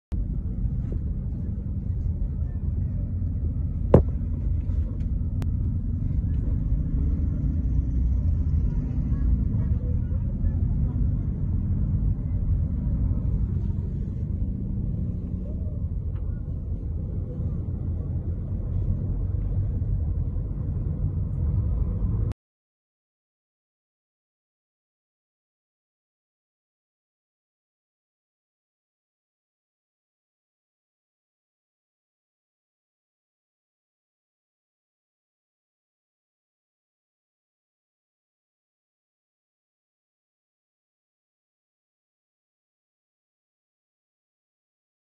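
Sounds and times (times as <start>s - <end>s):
car interior rumble: 0.2s - 22.3s.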